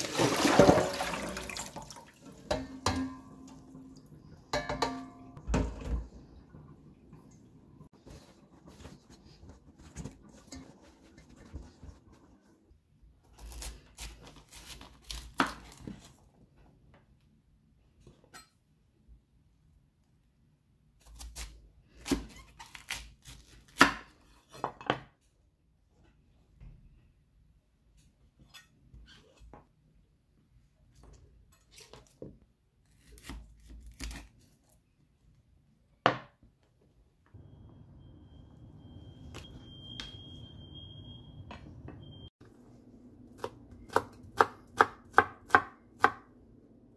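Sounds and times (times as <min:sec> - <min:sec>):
paper towel rustling: 0:07.9 - 0:12.7.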